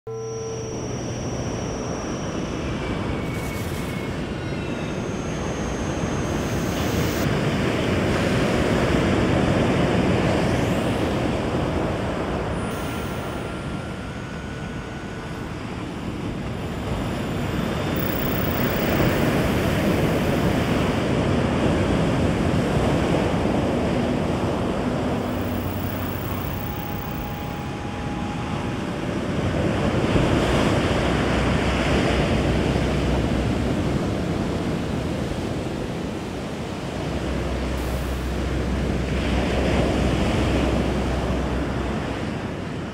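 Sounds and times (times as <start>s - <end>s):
faint thin tones: 0.1s - 7.3s, 10.1s - 21.0s, 24.9s - 34.1s, 36.9s - 42.3s.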